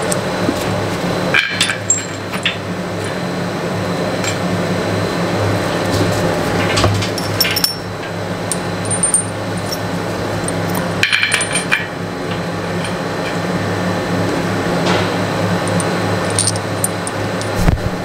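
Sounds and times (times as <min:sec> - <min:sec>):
steady low hum: 0:00.0 - 0:18.0
washers clinking on metal plate: 0:15.7 - 0:17.6.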